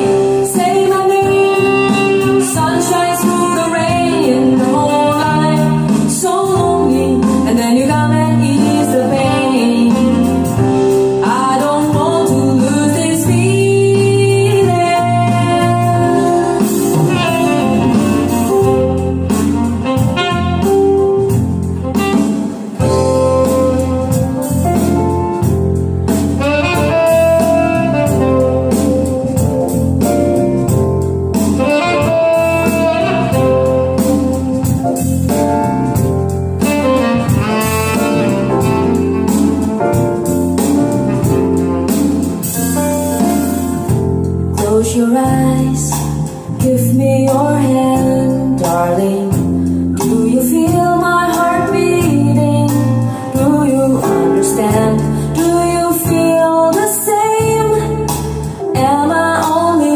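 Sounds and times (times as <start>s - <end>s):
saxophone melody: 0.0s - 44.6s, 46.5s - 49.3s
slow pop ballad over loudspeakers: 0.0s - 59.9s.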